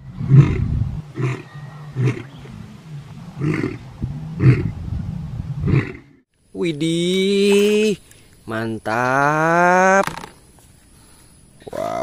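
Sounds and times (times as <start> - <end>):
lion roaring: 0.2 - 4.8, 5.6 - 6.2.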